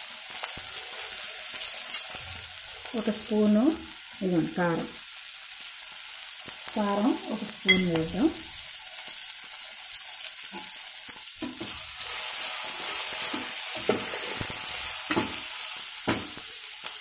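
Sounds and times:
onions sizzling in oil: 0:00.0 - 0:17.0
spoon scraping a pot: 0:12.7 - 0:14.5.

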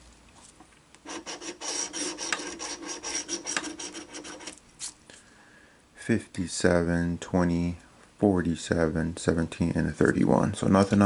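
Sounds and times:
lottery ticket being scratched: 0:01.0 - 0:04.9.

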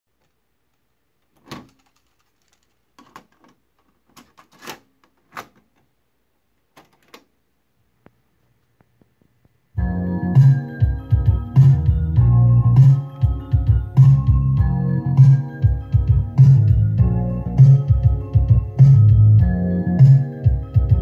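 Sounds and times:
music playing from cassette: 0:09.8 - 0:21.0.

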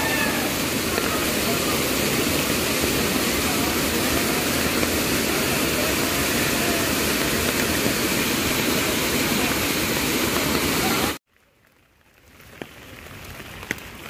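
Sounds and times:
waterfall roaring: 0:00.0 - 0:11.2.

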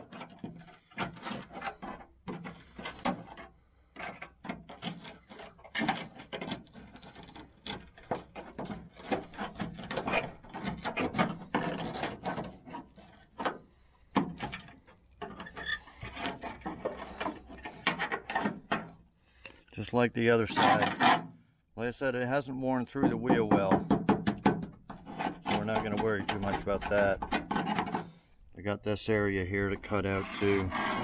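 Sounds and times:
sheet steel being cut: 0:30.0 - 0:31.0.

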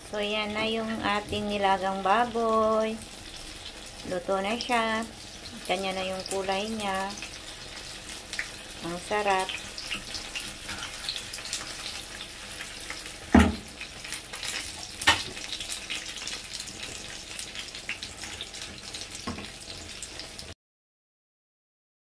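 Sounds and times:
knock on pot: 0:13.3 - 0:13.7.

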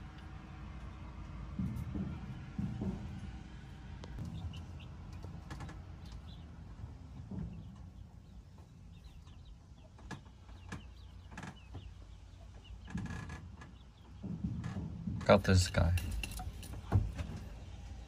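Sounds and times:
pigeons calling and chirping: 0:04.2 - 0:18.0.

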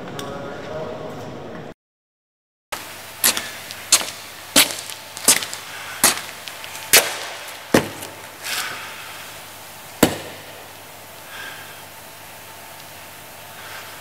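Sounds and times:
sharp knocks: 0:03.2 - 0:08.3, 0:10.0 - 0:10.7.

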